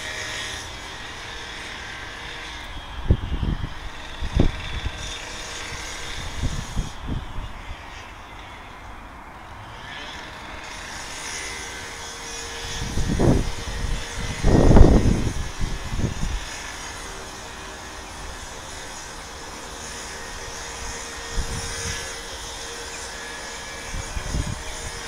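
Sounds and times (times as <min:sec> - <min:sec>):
wind buffeting microphone: 0:02.6 - 0:07.9, 0:12.4 - 0:16.8, 0:19.9 - 0:22.6, 0:23.2 - 0:25.0.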